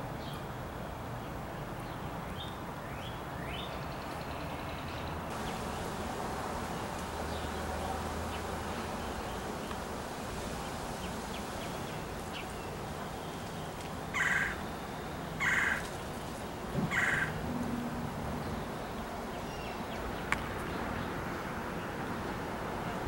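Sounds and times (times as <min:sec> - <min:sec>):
low background hum: 0:13.0 - 0:20.9
blue jay harsh calls: 0:14.1 - 0:14.7, 0:15.4 - 0:16.0, 0:16.9 - 0:17.9.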